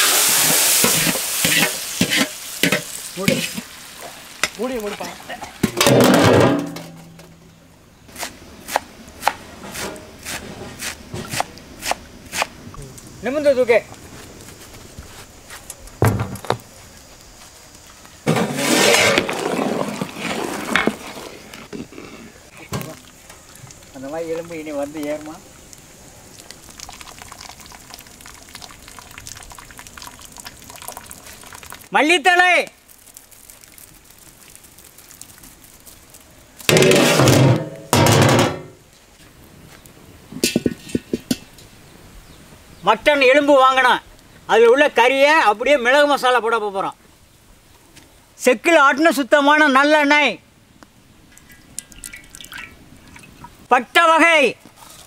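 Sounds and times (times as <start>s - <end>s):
heavy knocks of iron pan: 5.6s - 7.3s, 36.7s - 38.8s, 40.4s - 41.5s
metal lid scraping: 18.3s - 21.4s.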